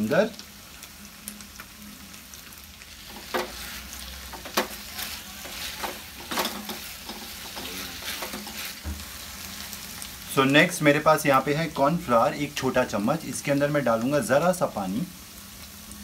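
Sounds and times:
vegetables sizzling in a pan: 0.0s - 16.0s
spatula scraping a pan: 3.0s - 9.2s.

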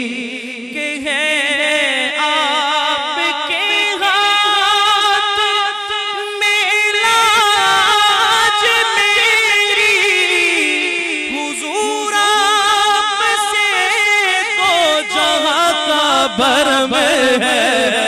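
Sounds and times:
man singing unaccompanied: 0.0s - 18.0s.

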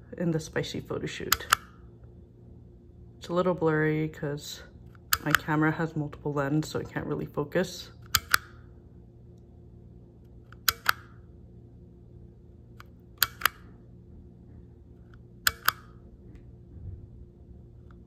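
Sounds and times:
toy camera shutter clicking: 8.0s - 8.6s, 10.6s - 11.2s, 12.8s - 13.7s, 15.4s - 16.0s.

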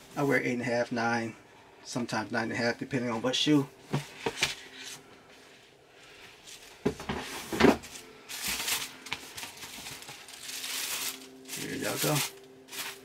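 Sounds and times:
tissue paper rustling: 4.0s - 13.0s.

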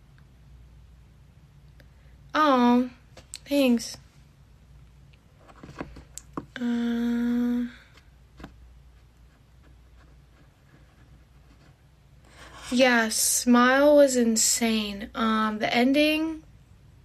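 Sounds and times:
woman humming: 6.6s - 7.9s
faint clicks and taps: 7.9s - 11.8s.

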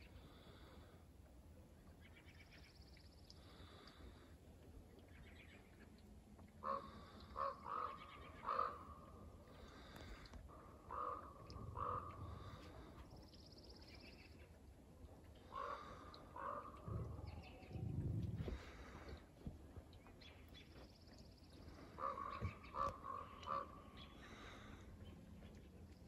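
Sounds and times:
ravens calling: 6.6s - 14.3s, 15.4s - 19.2s, 21.6s - 24.9s.

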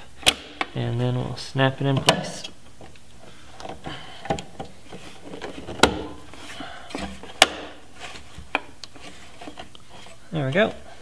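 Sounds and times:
lamp snapping into place clicks: 0.2s - 0.7s, 7.4s - 7.7s.

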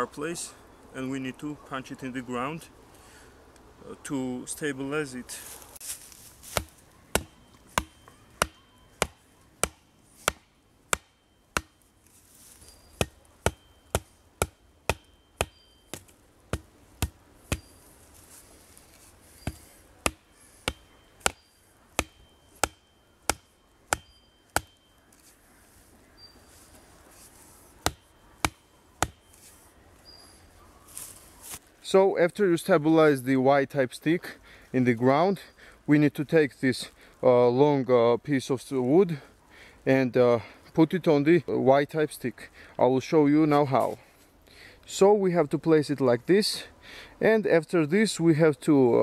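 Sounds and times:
hatchet hammering wooden stake: 6.4s - 11.8s, 13.0s - 17.7s, 19.4s - 24.8s, 27.8s - 29.4s.

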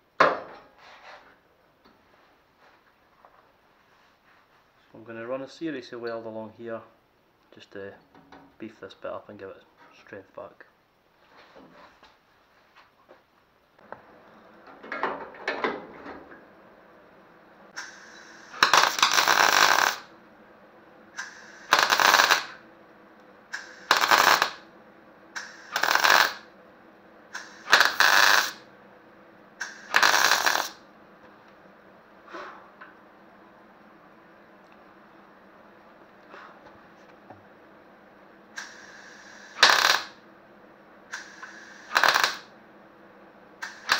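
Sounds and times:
mig welder crackling: 17.8s - 20.1s, 21.1s - 22.6s, 23.5s - 24.7s, 25.3s - 26.5s, 27.3s - 28.6s, 29.6s - 30.8s, 38.5s - 40.2s, 41.1s - 42.5s, 43.6s - 43.9s.

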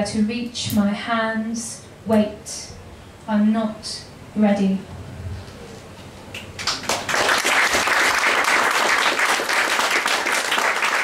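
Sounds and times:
audience applauding: 6.6s - 11.0s.

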